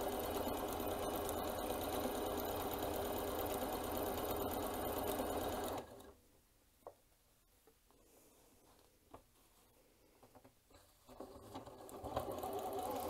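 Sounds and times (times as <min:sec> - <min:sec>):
sewing machine stitching: 0:00.0 - 0:06.2, 0:11.0 - 0:13.0.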